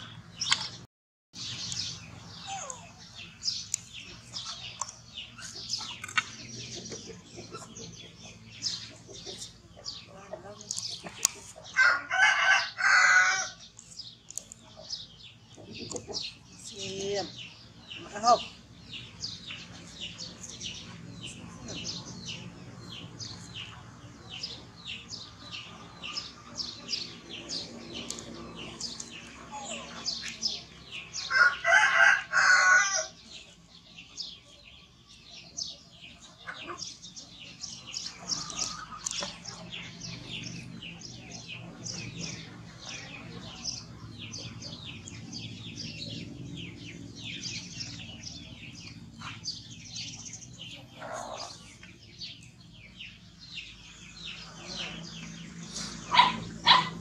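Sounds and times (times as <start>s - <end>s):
small birds chirping: 0.0s - 57.0s
rooster crowing: 11.8s - 13.6s, 31.2s - 33.2s.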